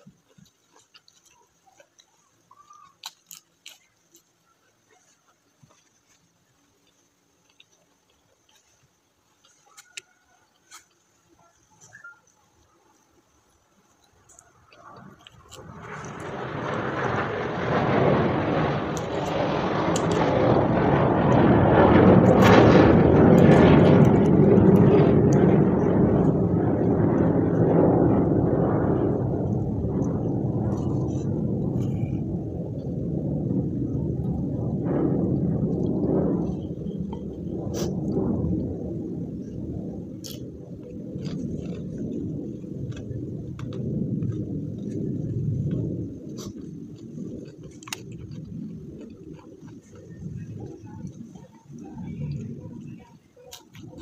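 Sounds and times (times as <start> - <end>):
crunchy food chewing: 0.0 - 17.8, 35.3 - 54.0
rumbling engine passing: 15.1 - 53.1.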